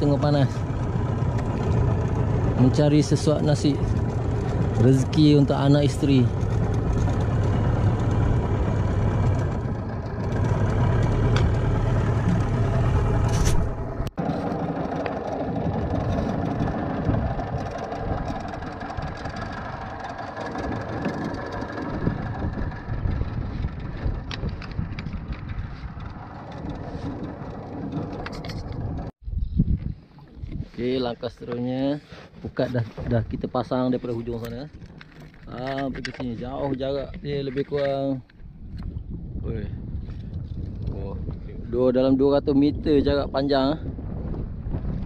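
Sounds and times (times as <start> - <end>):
outboard motor running: 0.0 - 29.1, 32.3 - 38.9.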